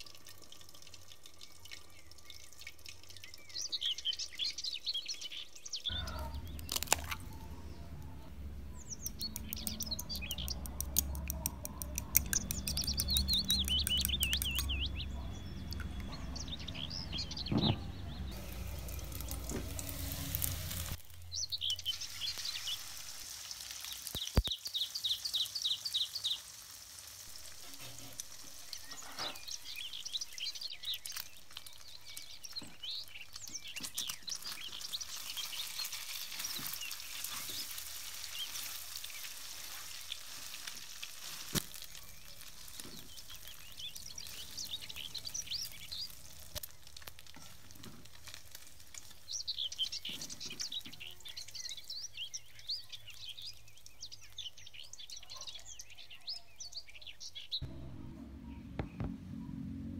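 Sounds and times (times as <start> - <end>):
metal spatula scraping wok: 12.2 - 21.0, 27.3 - 29.8
food sizzling in oil: 18.3 - 54.8.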